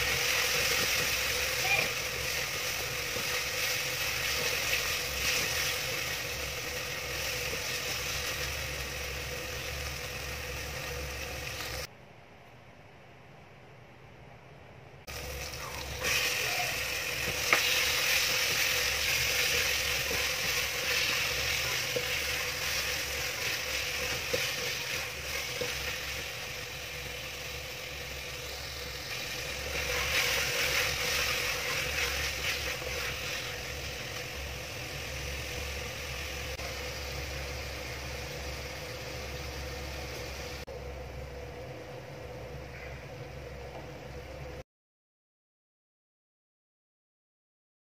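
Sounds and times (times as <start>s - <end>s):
chicken sizzling in a pot: 0.0s - 11.9s, 15.1s - 44.6s.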